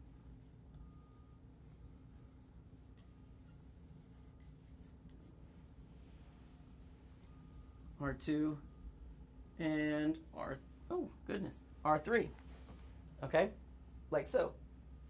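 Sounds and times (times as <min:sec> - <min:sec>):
marker scratching on whiteboard: 0:00.0 - 0:00.8, 0:01.5 - 0:07.7.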